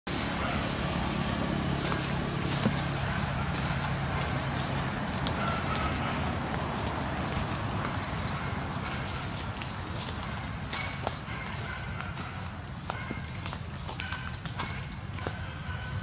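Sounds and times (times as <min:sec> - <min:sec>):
low hum: 0:00.1 - 0:12.1.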